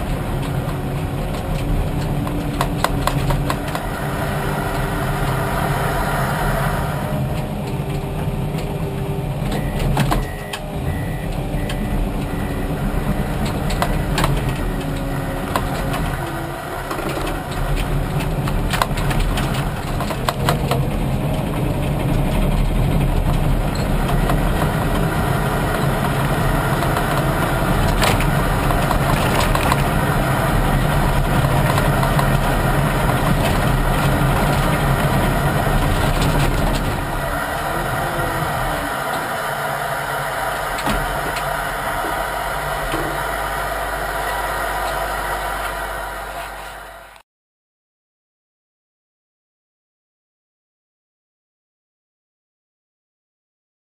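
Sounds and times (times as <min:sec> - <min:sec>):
knocks and rattles: 0:00.0 - 0:03.9, 0:13.2 - 0:37.3
diesel engine running: 0:00.0 - 0:47.2.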